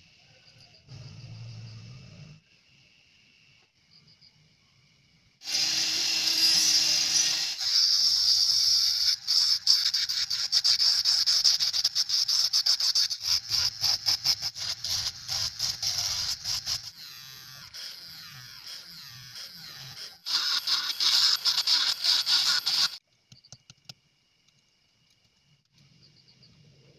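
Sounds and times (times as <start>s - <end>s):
rotary tool grinding plastic: 5.4s - 23.0s.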